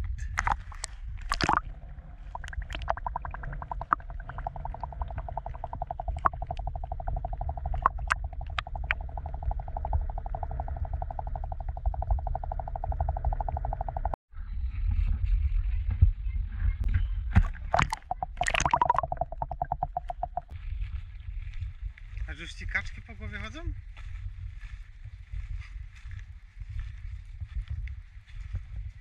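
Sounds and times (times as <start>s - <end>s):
muffled underwater rumble: 0.0s - 22.2s
fast pulsing buzz: 2.4s - 14.2s.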